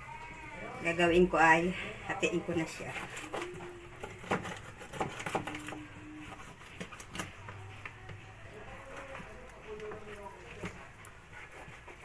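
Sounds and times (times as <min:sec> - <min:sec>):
knife slicing fish: 0:02.6 - 0:07.4, 0:08.7 - 0:12.0.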